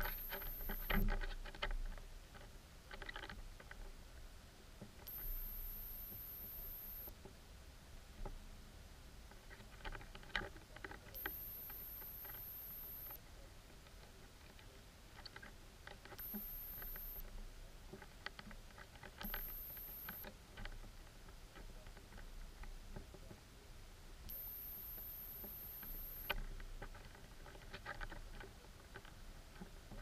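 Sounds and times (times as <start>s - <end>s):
thin high whine: 0.0s - 1.1s, 5.1s - 7.1s, 11.2s - 13.2s, 16.2s - 17.3s, 19.2s - 20.3s, 24.3s - 26.4s
underwater clicks and ticks: 0.0s - 3.9s, 9.4s - 13.2s, 15.2s - 17.3s, 17.9s - 20.8s, 24.3s - 30.0s.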